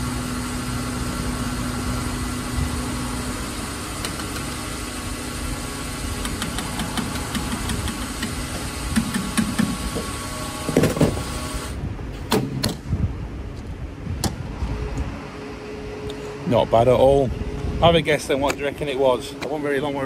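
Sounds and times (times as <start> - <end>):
bus engine running: 0.0 - 12.3
sharp clicks: 6.2 - 8.3.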